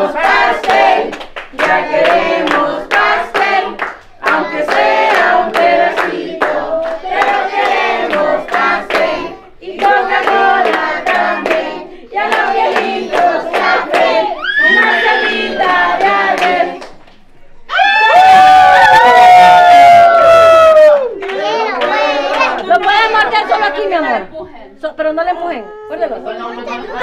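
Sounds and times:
group of voices singing: 0:00.0 - 0:17.0, 0:21.2 - 0:24.3
rhythmic hand-clapping: 0:00.0 - 0:17.3, 0:20.8 - 0:23.3.

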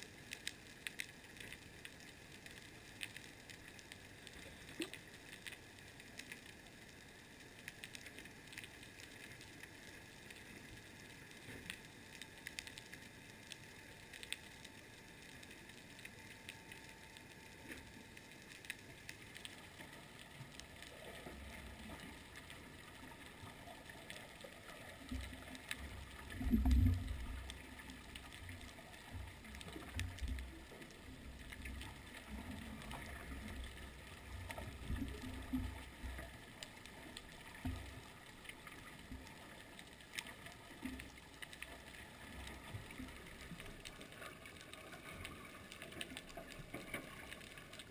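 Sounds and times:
low rumbling water surges: 0:00.0 - 0:47.9
small underwater clicks and crackles: 0:00.0 - 0:47.9.

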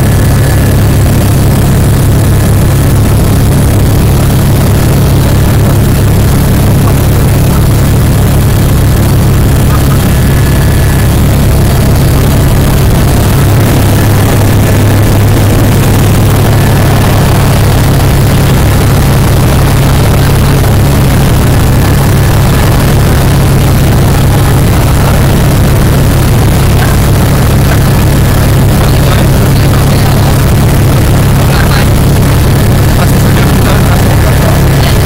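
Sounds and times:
helicopter rotor and engine drone: 0:00.0 - 0:35.0.

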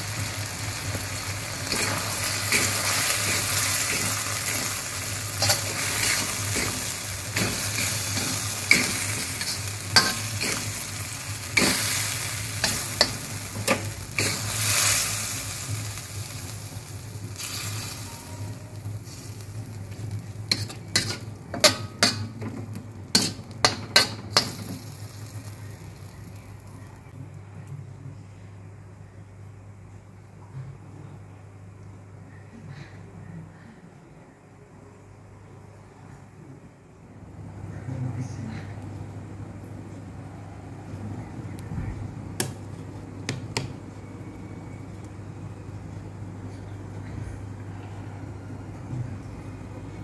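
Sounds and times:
sauce sizzling in a wok: 0:00.0 - 0:27.1
metal spatula scraping a wok: 0:01.7 - 0:10.8, 0:20.5 - 0:24.7.

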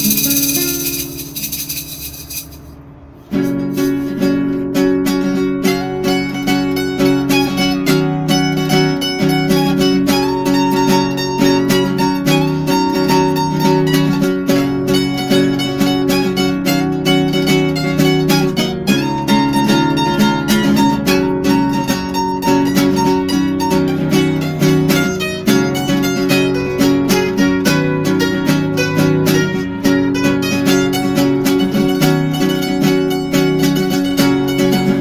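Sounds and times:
mandolin picking melody: 0:00.0 - 0:01.6, 0:02.8 - 0:35.0
acoustic guitar accompaniment: 0:00.0 - 0:35.0.

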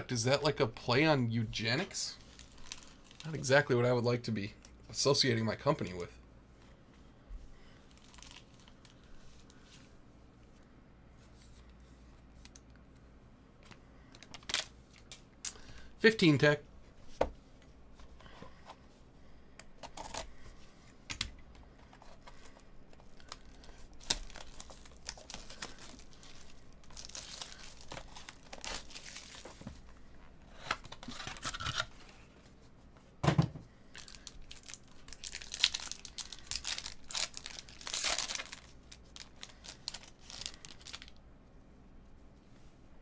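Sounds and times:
plastic wrap crinkling and tearing: 0:02.1 - 0:03.6, 0:07.9 - 0:09.5, 0:22.5 - 0:29.9, 0:33.9 - 0:41.2
foil pack tearing open: 0:34.1 - 0:41.1.

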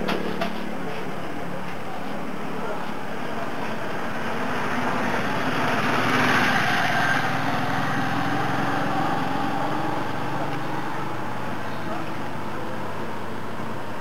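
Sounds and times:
small engine running: 0:03.4 - 0:14.0.

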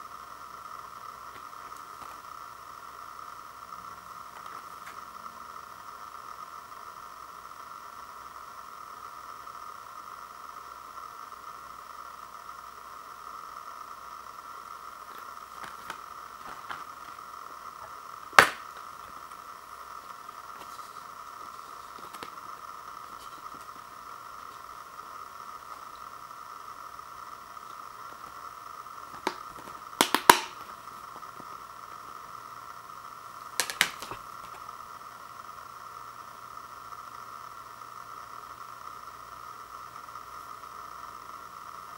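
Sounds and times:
steady background hiss: 0:00.0 - 0:41.9
plastic case clicks: 0:18.4 - 0:18.6, 0:29.2 - 0:30.6, 0:33.6 - 0:34.2.

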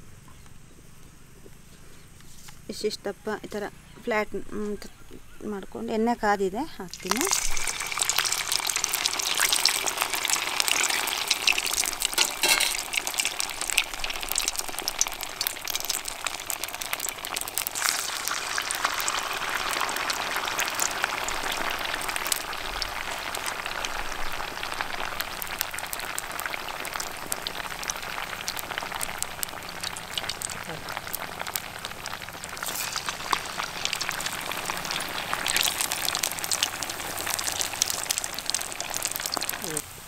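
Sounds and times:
food sizzling in hot oil: 0:05.8 - 0:40.0
oil popping: 0:06.7 - 0:39.8.

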